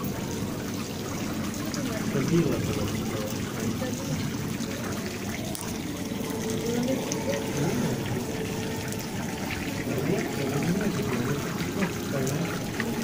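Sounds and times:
water trickling in pool: 0.0 - 13.0.

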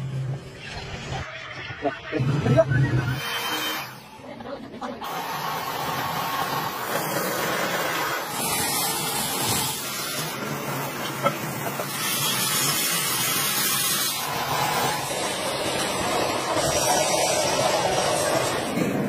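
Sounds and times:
aerosol spray can hissing: 5.1 - 10.3.

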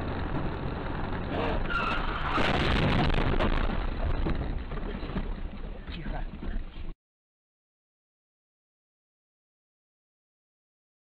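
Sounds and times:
rough rushing noise: 0.0 - 6.7
tyre squeal: 1.3 - 2.5.

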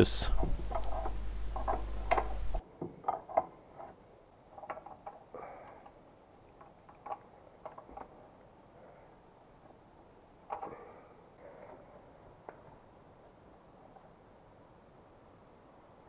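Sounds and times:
handling noise: 0.0 - 5.6.

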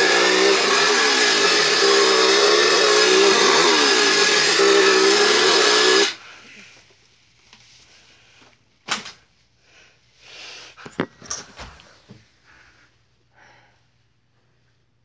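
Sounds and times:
chainsaw revving: 0.0 - 6.2.

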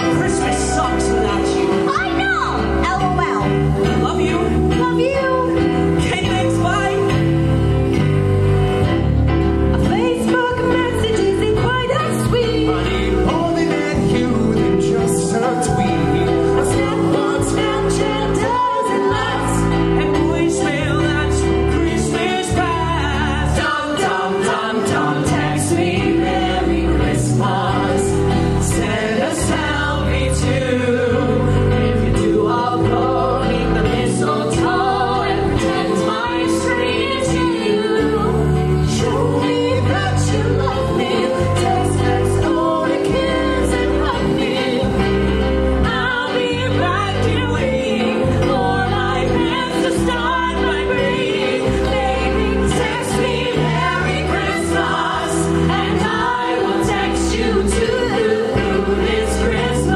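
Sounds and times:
vocal group singing in harmony: 0.0 - 59.9.

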